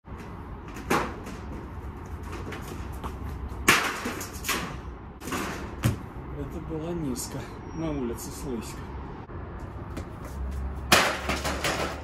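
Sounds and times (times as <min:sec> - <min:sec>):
low city rumble: 0:00.0 - 0:12.0
sneakers striking concrete: 0:05.8 - 0:06.1, 0:09.6 - 0:11.5.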